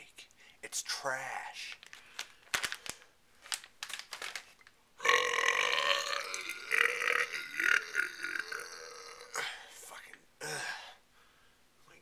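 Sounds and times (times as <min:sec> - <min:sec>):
man burping loudly: 0:05.0 - 0:09.5.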